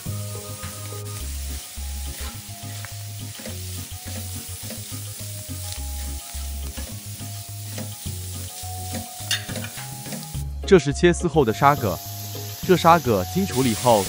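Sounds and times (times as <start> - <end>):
oil sizzling in a wok: 0.0 - 10.6, 11.4 - 14.0
low background music: 0.0 - 14.0
spatula scraping a wok: 0.3 - 10.4.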